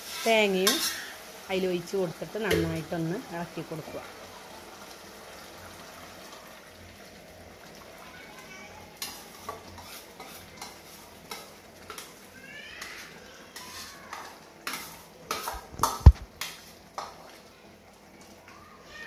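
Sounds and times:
food sizzling in a pot: 0:00.0 - 0:19.0
spoon scraping a plate: 0:09.0 - 0:12.0.

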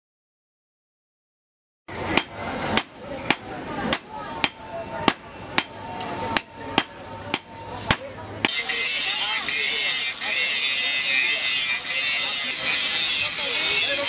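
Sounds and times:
hammers striking steel on anvil: 0:02.0 - 0:14.0.

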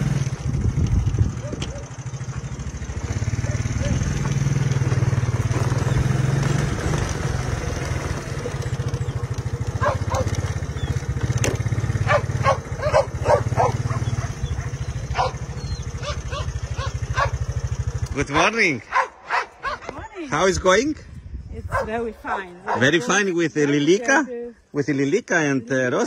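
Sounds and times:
small engine humming: 0:00.0 - 0:18.3
dogs barking and yipping: 0:01.2 - 0:18.0, 0:18.8 - 0:20.4, 0:21.7 - 0:23.3.

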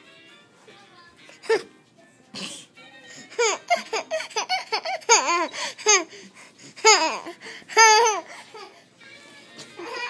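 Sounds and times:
baby laughing: 0:03.3 - 0:06.2, 0:06.8 - 0:08.8, 0:09.8 - 0:10.0.

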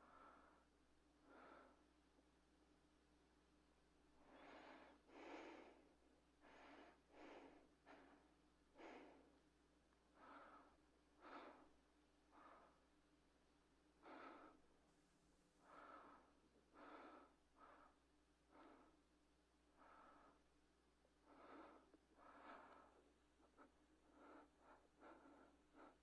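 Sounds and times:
man breathing raggedly: 0:04.2 - 0:09.4, 0:10.1 - 0:12.9, 0:14.0 - 0:14.8, 0:15.6 - 0:26.0.

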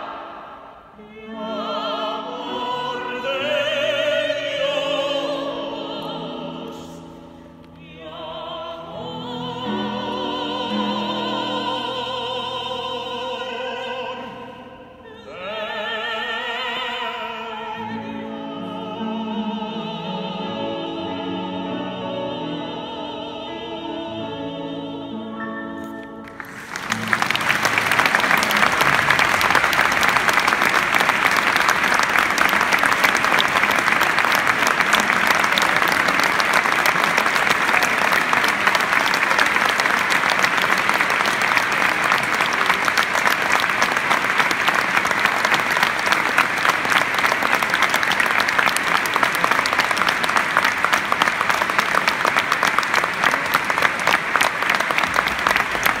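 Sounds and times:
audience applauding: 0:26.2 - 0:56.0.

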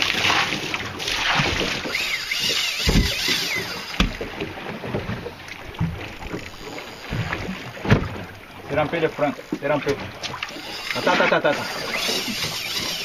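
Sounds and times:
sea noise: 0:00.0 - 0:13.0
wind: 0:00.0 - 0:13.0
low knocks: 0:02.8 - 0:03.3.

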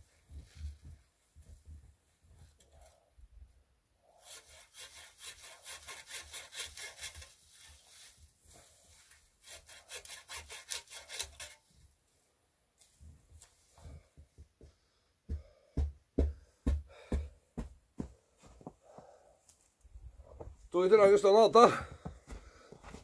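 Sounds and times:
hand saw cutting wood: 0:04.2 - 0:08.2, 0:09.0 - 0:11.7.

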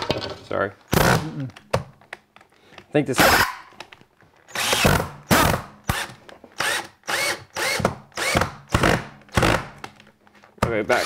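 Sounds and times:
cordless drill bursts: 0:04.5 - 0:09.6.

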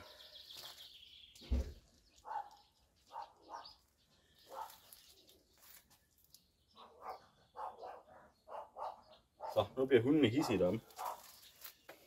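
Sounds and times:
dog barking: 0:02.2 - 0:03.8, 0:04.5 - 0:04.8, 0:06.8 - 0:11.3.

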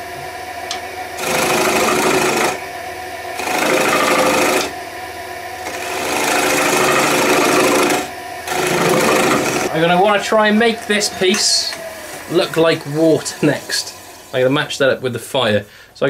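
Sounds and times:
wood lathe running: 0:00.7 - 0:02.7, 0:03.3 - 0:04.8, 0:05.6 - 0:14.9
turning tool cutting wood: 0:01.2 - 0:02.7, 0:03.3 - 0:04.8, 0:05.6 - 0:14.8.

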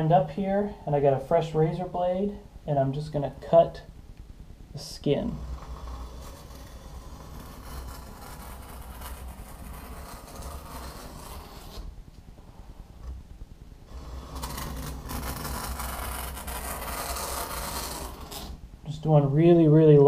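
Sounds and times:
razor blade scraping along steel: 0:05.2 - 0:11.9, 0:13.9 - 0:18.6.

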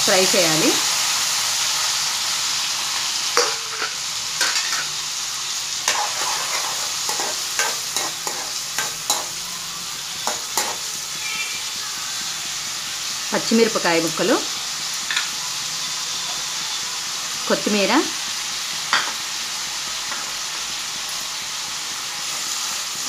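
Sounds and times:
vegetables sizzling in oil: 0:00.0 - 0:23.0
spoon stirring in metal pan: 0:05.8 - 0:09.4, 0:10.2 - 0:10.9.

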